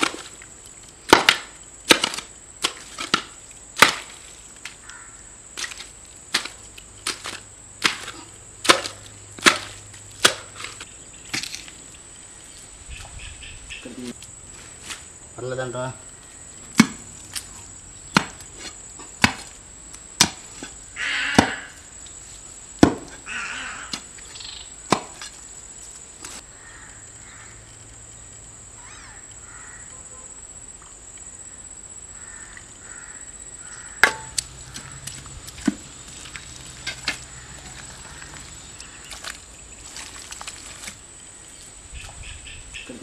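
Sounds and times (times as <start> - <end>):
wet mud slaps and thuds: 1.1 - 4.3, 5.6 - 11.6, 16.7 - 17.5, 18.1 - 21.7, 22.8 - 23.2, 24.9 - 25.3, 34.0 - 41.0.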